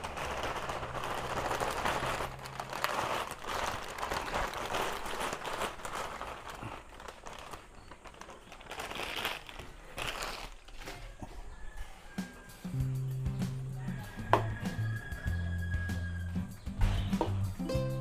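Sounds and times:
plastic packet crinkling: 0.0s - 11.2s.

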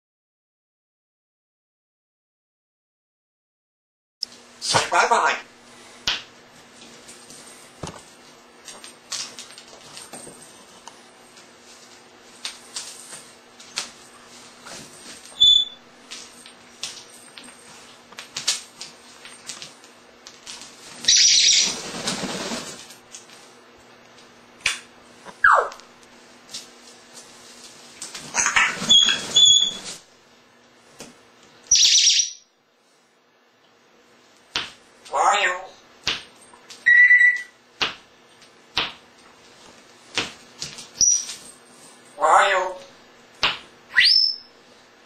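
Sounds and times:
parrot high whistle: 15.4s - 15.8s, 21.1s - 21.7s, 25.4s - 25.7s, 28.4s - 30.0s, 31.7s - 32.4s, 36.8s - 37.5s, 43.9s - 44.5s
parrot flapping wings: 20.3s - 23.0s, 28.0s - 30.0s.

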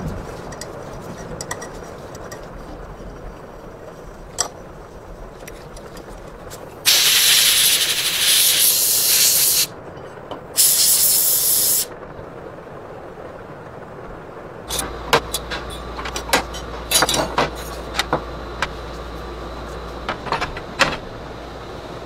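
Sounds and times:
air blow gun hissing: 6.9s - 9.7s, 10.6s - 11.9s.

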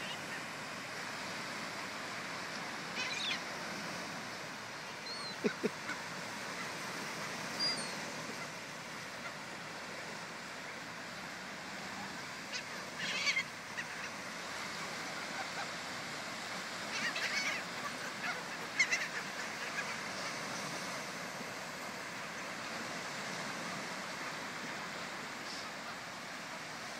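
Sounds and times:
surf washing on beach: 0.0s - 26.9s
gulls calling: 2.5s - 3.8s, 4.7s - 23.2s.

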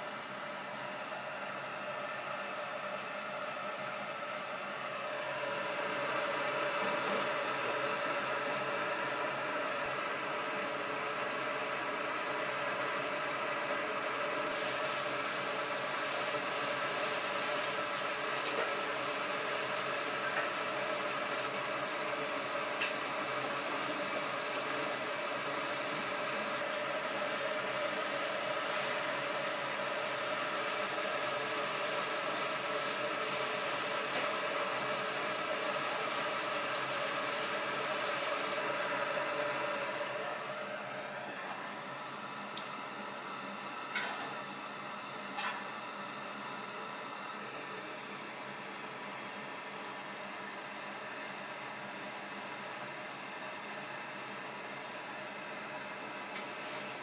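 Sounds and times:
meat sizzling on a grill: 14.5s - 21.4s, 27.1s - 38.6s, 56.4s - 57.0s.

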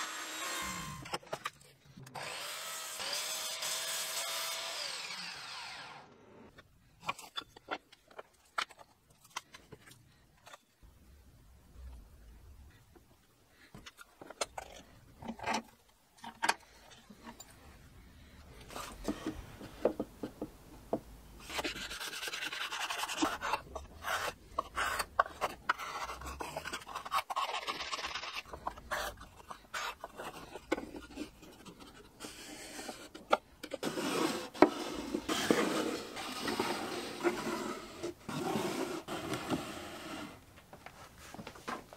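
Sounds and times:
hand plane rasping strokes: 33.8s - 40.4s
wooden drawer scraping: 33.8s - 40.4s.

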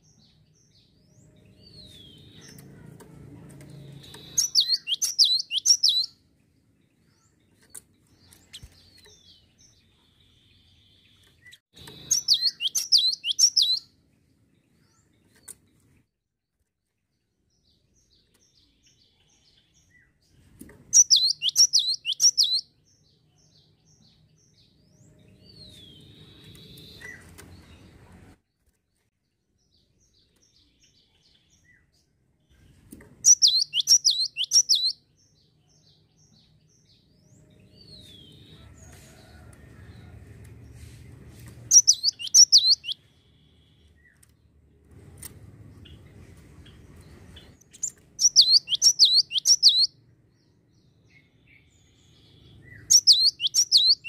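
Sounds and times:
bird singing high falling notes: 4.0s - 6.1s.

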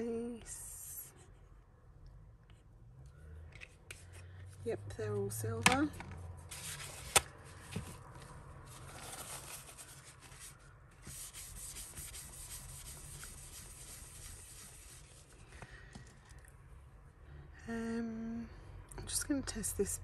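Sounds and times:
hand rubbing a hard surface: 8.8s - 15.4s.

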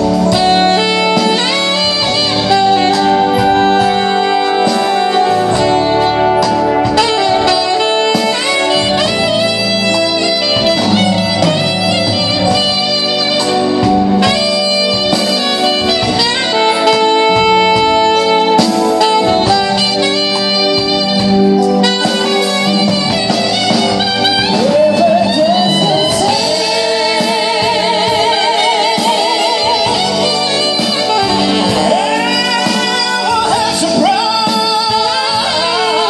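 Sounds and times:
alto saxophone melody: 0.0s - 36.0s
live band music: 0.0s - 36.0s
woman singing: 24.6s - 36.0s.

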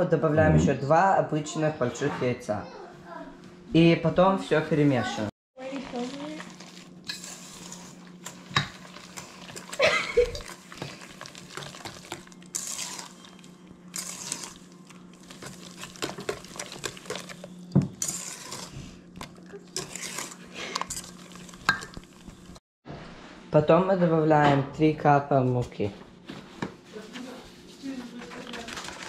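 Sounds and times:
whisk swishing wet mixture: 5.6s - 22.4s
whisk wires clinking on metal bowl: 19.8s - 22.2s.

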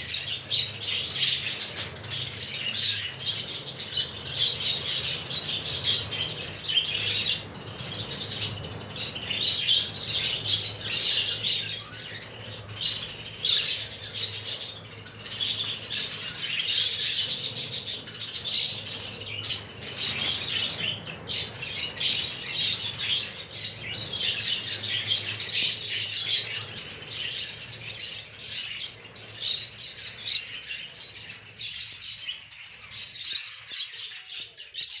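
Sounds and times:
budgerigars chattering and chirping: 0.0s - 35.0s
wings flapping: 13.8s - 29.4s.

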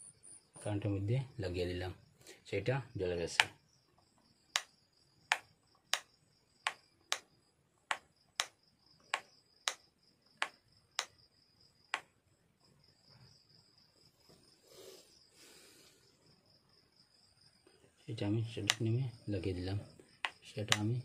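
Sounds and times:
high insect trill: 0.0s - 21.0s
rocker switch clicking: 18.6s - 18.8s, 20.2s - 20.9s.

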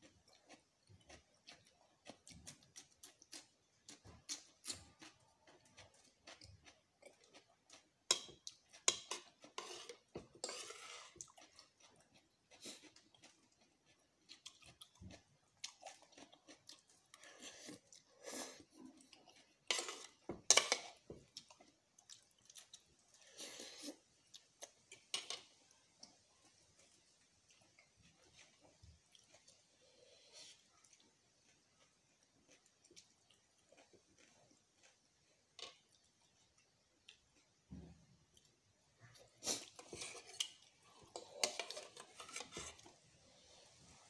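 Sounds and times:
chewing and slurping: 0.0s - 37.6s, 38.4s - 44.0s
cutlery clinking against bowl: 19.7s - 21.0s.

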